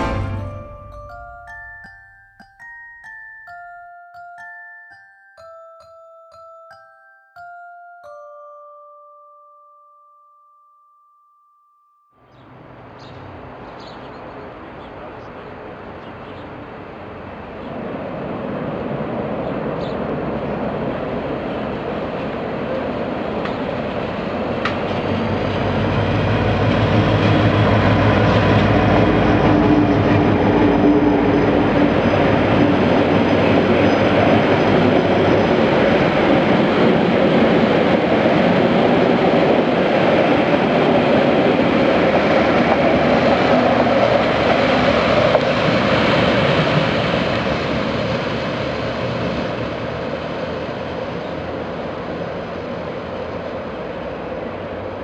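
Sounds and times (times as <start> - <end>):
diesel locomotive engine humming: 20.5 - 54.8.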